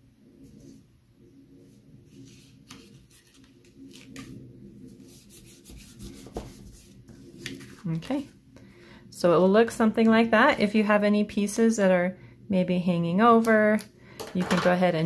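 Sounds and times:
hands rubbing cardstock: 2.1 - 7.8.

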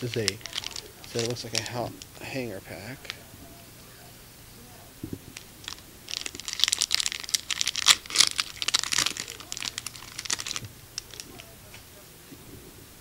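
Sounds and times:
plastic wrapper tearing and crinkling: 0.0 - 3.2, 5.3 - 11.5.

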